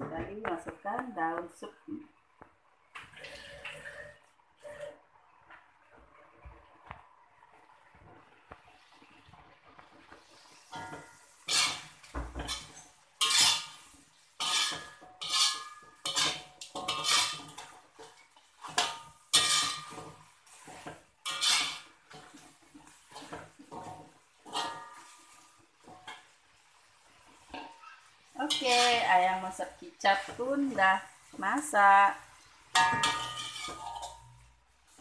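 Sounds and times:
spatula scraping metal wok: 10.0s - 26.4s, 27.1s - 35.0s.

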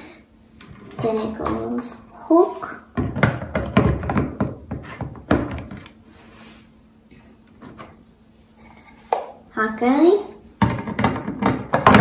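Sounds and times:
plastic bases knocking together: 3.0s - 5.9s, 10.6s - 12.0s.

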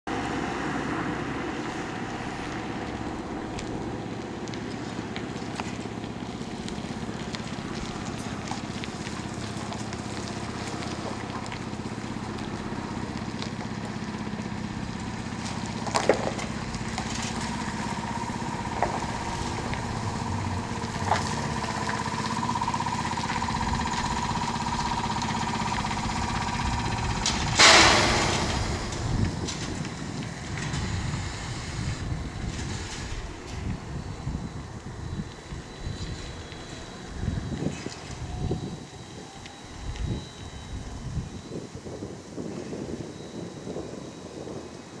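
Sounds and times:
street traffic: 0.1s - 45.0s
trolleybus electric whine: 0.1s - 45.0s
loud hiss: 27.6s - 29.2s, 30.7s - 33.0s.

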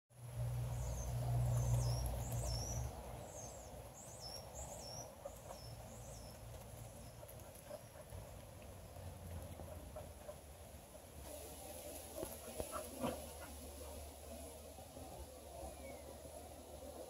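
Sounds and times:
songbird calling: 0.6s - 8.1s, 15.5s - 16.4s.

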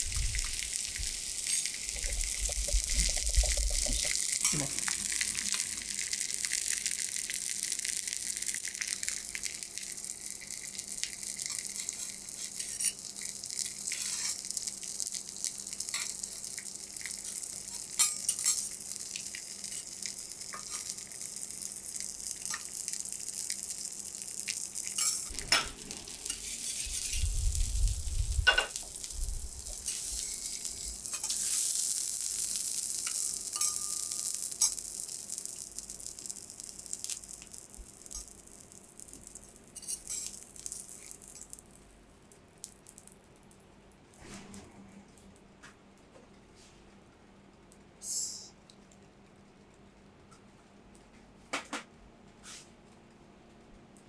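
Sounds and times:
hot griddle sizzling: 0.0s - 44.3s
metal spatulas scraping griddle: 25.0s - 27.2s.

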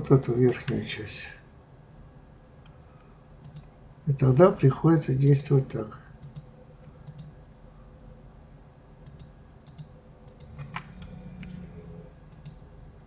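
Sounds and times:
faint low hum: 0.0s - 13.0s
keyboard and mouse clicks: 3.4s - 3.7s, 6.2s - 7.4s, 9.0s - 11.6s, 12.3s - 12.6s.

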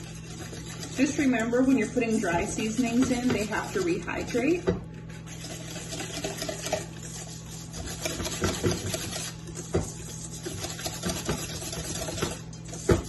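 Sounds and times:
whisk scraping metal bowl: 0.0s - 13.0s
whisk clicking against bowl: 2.5s - 4.2s, 5.4s - 13.0s.

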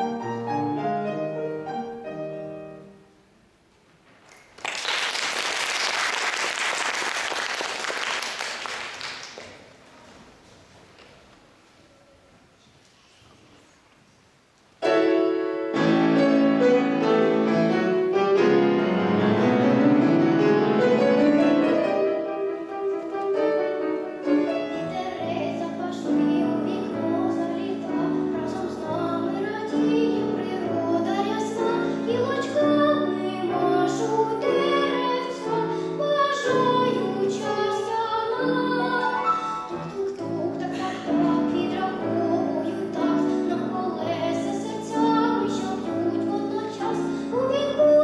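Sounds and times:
grand piano accompaniment: 0.0s - 9.8s, 14.8s - 48.0s
girl singing classical style: 14.8s - 48.0s.

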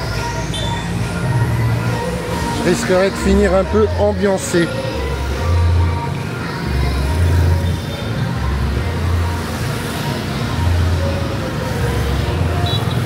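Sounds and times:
motorbike and car traffic: 0.0s - 13.0s.

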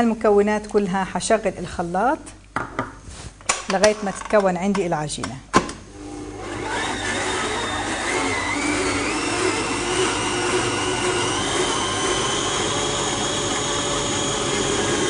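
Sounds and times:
stand mixer motor whining: 6.0s - 15.0s.

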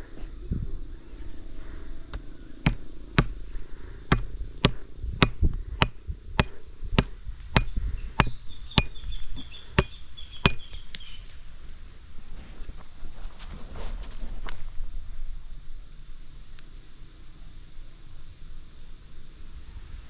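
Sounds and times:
axe knocking on wooden stake: 2.7s - 3.4s, 4.1s - 9.0s, 9.8s - 10.7s.

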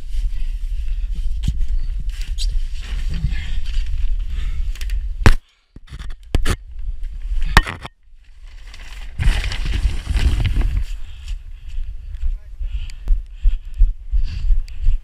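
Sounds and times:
clothing rustling: 8.4s - 11.0s.

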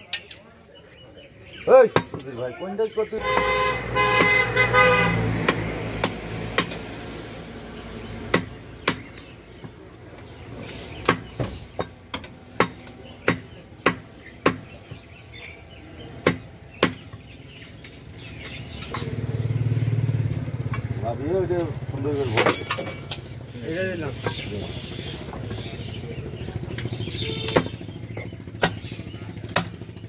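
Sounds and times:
vehicle horn: 3.2s - 5.4s, 27.1s - 27.8s
engine revving: 3.2s - 8.6s, 18.9s - 22.4s
cleaver chopping meat on wood: 5.1s - 7.0s, 8.2s - 9.9s, 10.5s - 19.3s, 26.6s - 30.0s.

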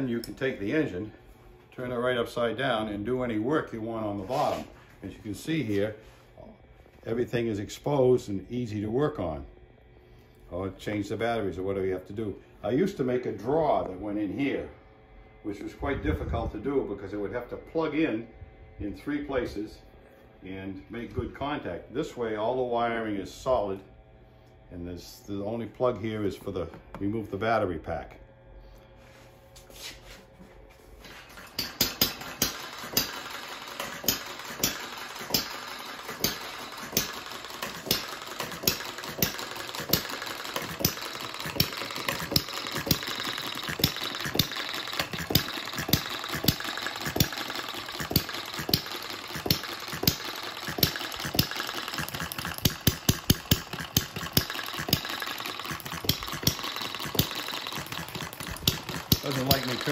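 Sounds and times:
mechanical clatter: 31.3s - 59.9s
small engine firing pops: 31.5s - 59.9s.

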